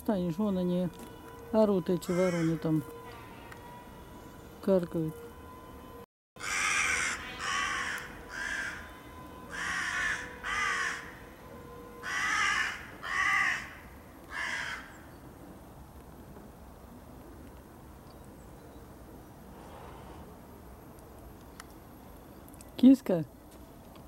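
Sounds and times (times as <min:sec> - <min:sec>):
crows cawing: 0:02.1 - 0:03.7, 0:06.4 - 0:11.2, 0:12.0 - 0:15.0.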